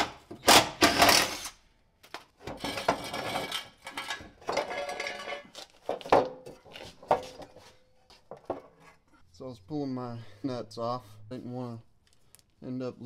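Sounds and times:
metal rattling and clanking: 2.5 - 6.6.

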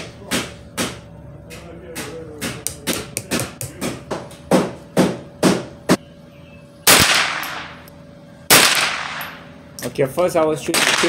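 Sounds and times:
loud rifle shot ringing: 6.8 - 7.8, 8.5 - 9.4, 10.7 - 11.0.

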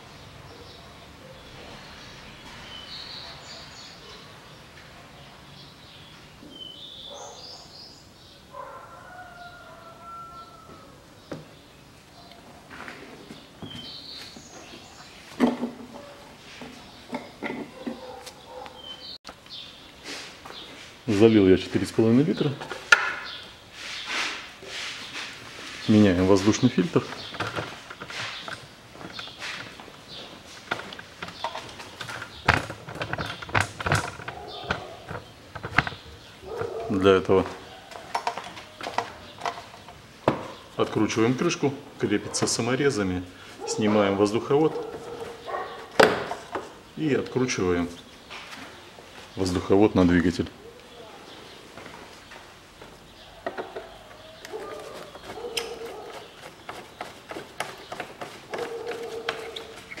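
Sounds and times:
irregular knocks and clicks: 27.0 - 36.9.

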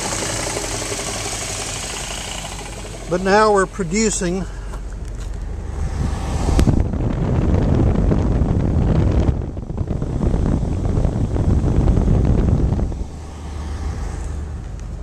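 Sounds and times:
compressor turning: 0.0 - 7.0
car engine idling: 0.0 - 15.0
wind rumbling on microphone: 4.6 - 15.0.

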